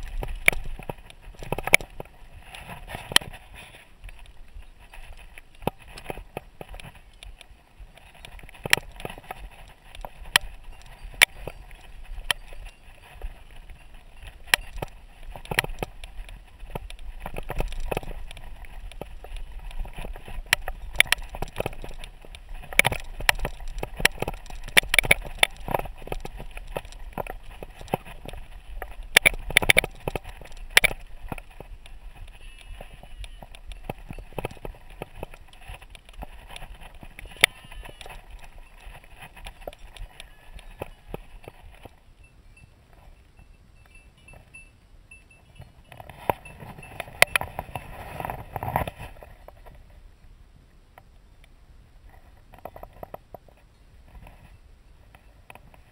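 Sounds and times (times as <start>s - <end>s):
bike frame rattling: 0.0s - 42.0s
wind: 0.0s - 55.9s.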